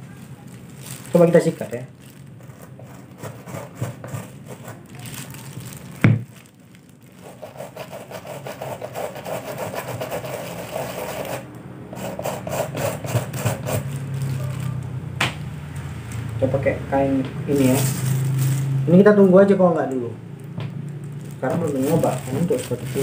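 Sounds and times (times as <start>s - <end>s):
brush scrubbing leather shoe: 7.2s - 11.4s.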